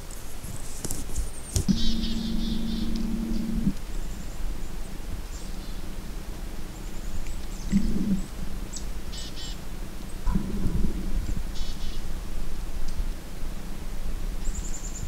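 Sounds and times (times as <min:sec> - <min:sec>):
steady low hum: 0:00.0 - 0:15.0
songbirds chirping and trilling: 0:01.2 - 0:12.5
low rumbling: 0:01.7 - 0:13.8.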